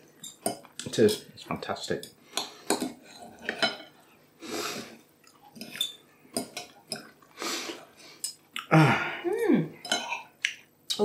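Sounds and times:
cutlery clinking on a plate: 2.0s - 4.0s
cutlery scraping a plate: 2.4s - 4.0s, 5.5s - 7.1s.

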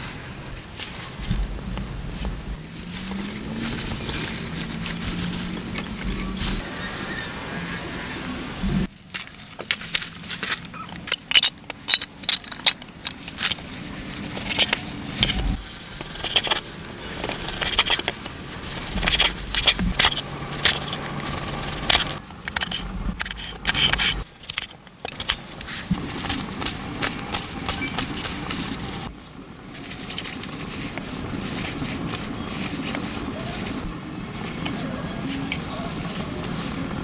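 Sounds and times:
knife scraping board: 14.4s - 18.1s, 18.8s - 21.1s, 21.7s - 24.7s.

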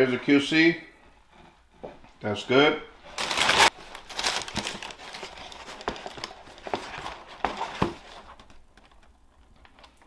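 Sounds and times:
tissue paper rustling: 3.0s - 8.7s.

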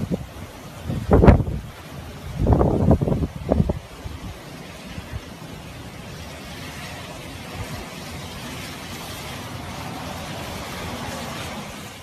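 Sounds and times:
wind buffeting microphone: 0.0s - 5.7s
rain hissing: 0.0s - 12.0s
strong wind blowing: 0.0s - 12.0s.

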